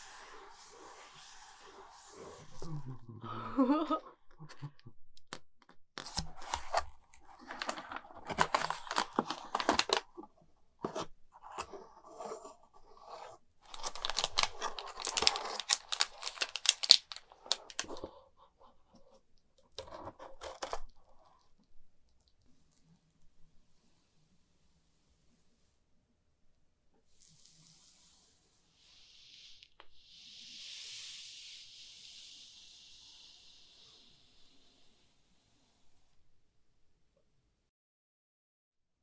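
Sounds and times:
cardboard box scraping and tearing: 6.0s - 10.1s, 10.8s - 18.0s.

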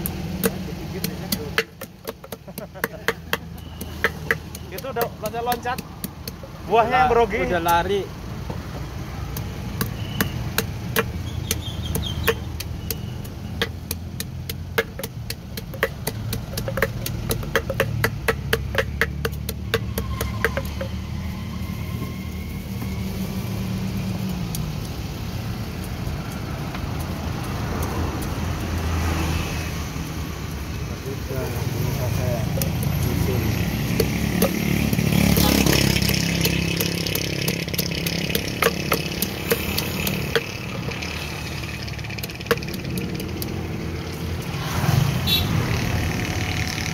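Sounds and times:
pestle pounding in a mortar: 0.0s - 21.7s, 32.4s - 44.6s.

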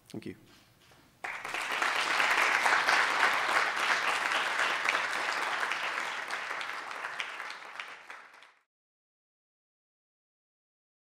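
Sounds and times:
audience applauding: 1.2s - 8.7s.

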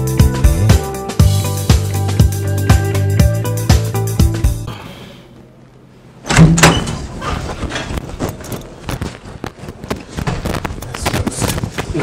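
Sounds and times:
wooden door banging open: 6.3s - 7.3s.

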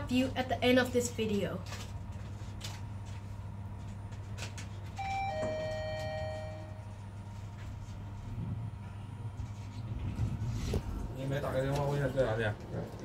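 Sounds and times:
low hum in elevator car: 2.2s - 13.0s
elevator chime two notes: 5.0s - 6.9s.

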